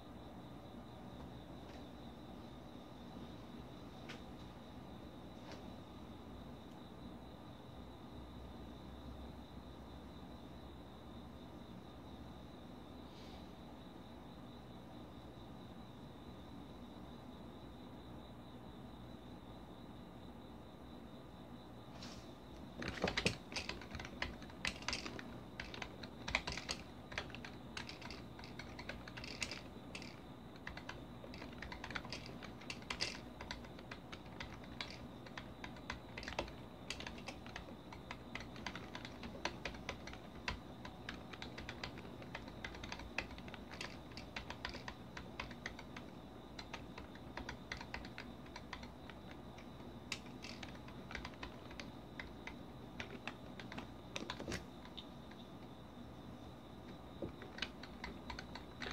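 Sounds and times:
typing on computer keyboard: 22.8 - 55.4, 57.2 - 58.9.

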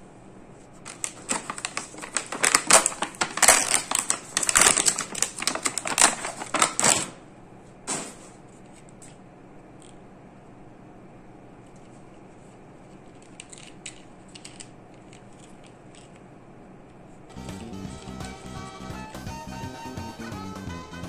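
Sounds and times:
plastic packaging crackling: 0.8 - 7.2.

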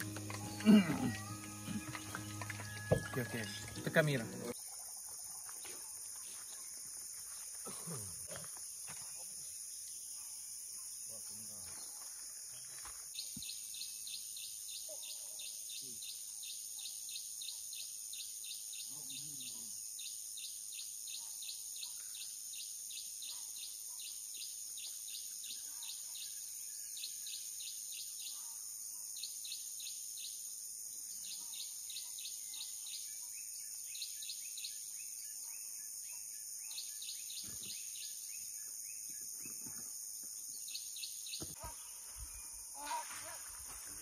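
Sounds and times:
high-pitched insect drone: 0.0 - 6.5
rapid insect chirping: 0.0 - 44.0.

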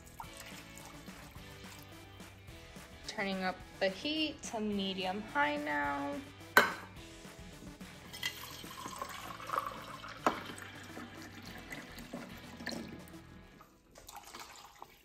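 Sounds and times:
water running into a can: 0.0 - 2.0, 8.2 - 13.2, 13.9 - 15.0.

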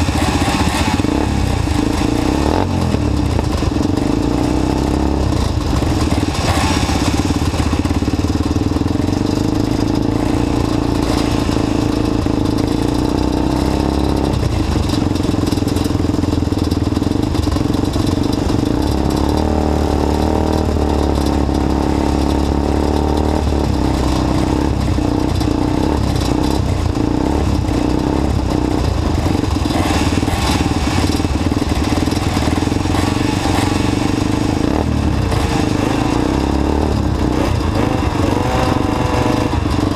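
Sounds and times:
atv engines idling: 0.0 - 39.9.

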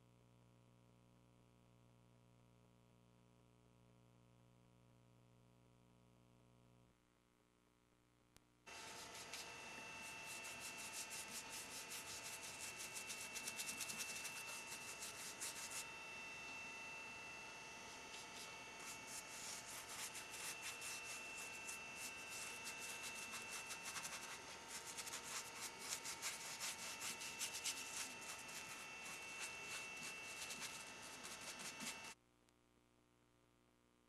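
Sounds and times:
faint high whine: 0.0 - 34.0
paintbrush brushing scrapes: 8.7 - 15.9, 17.9 - 32.2.

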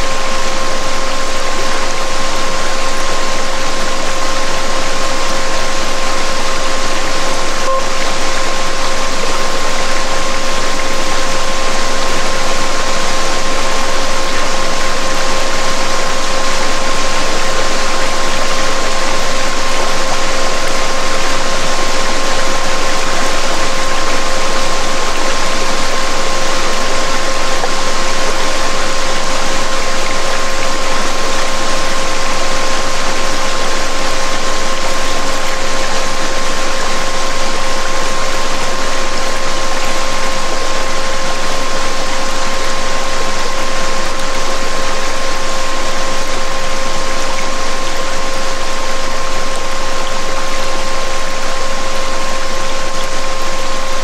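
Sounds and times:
pure steady tone: 0.0 - 54.0
higher pure tone: 7.4 - 8.9.

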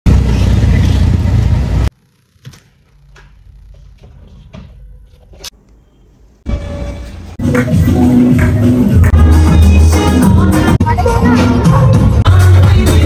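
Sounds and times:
engine and road noise: 0.0 - 4.0.

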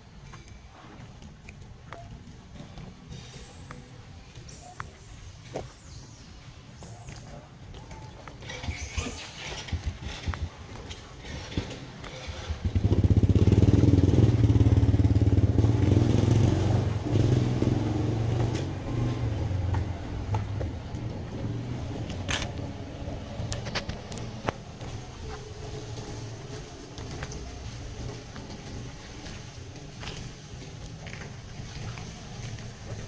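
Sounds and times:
small motorcycle engine running: 8.4 - 23.1.

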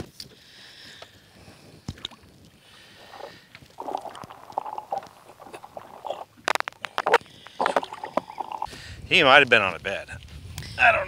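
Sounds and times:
water splashing and sloshing: 1.8 - 8.7.

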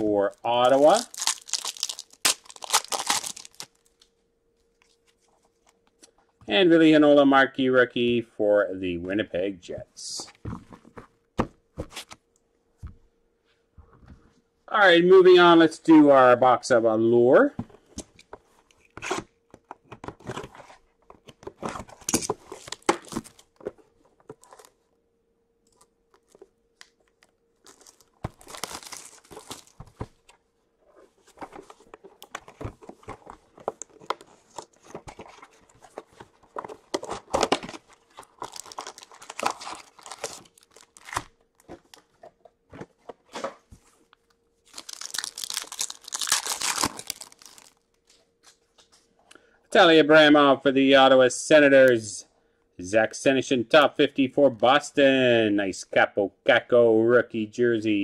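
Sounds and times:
plastic wrapping tearing and crinkling: 0.6 - 3.9, 27.2 - 29.8, 36.8 - 41.7, 44.7 - 47.9.

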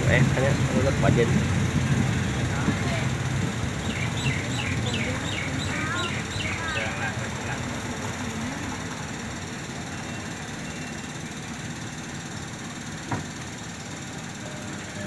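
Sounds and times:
train wheels rumbling: 0.0 - 15.0.

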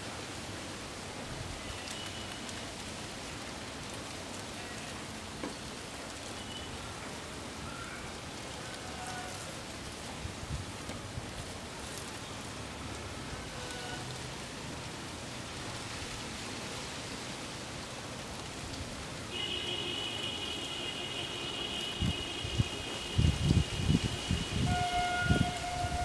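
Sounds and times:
wind rumble on microphone: 10.1 - 11.6, 22.0 - 26.0
wind hissing: 21.8 - 26.0.

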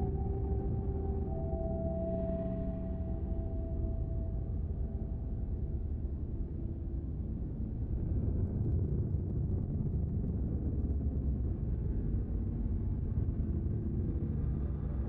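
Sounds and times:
faint held low tones: 0.0 - 8.2
low rumbling drone: 0.0 - 15.0.

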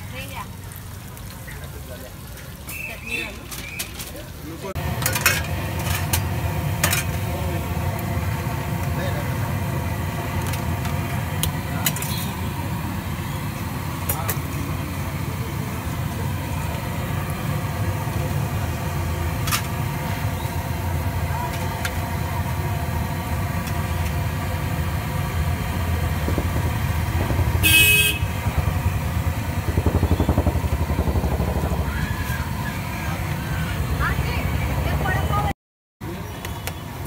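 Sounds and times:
rumble of passing vehicles: 0.0 - 37.0
motorcycle engine passing: 25.3 - 35.5
car horn honk: 27.2 - 28.6.

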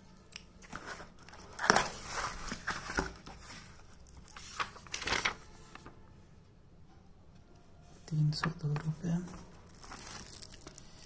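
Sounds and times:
paper rustling: 0.6 - 5.9.

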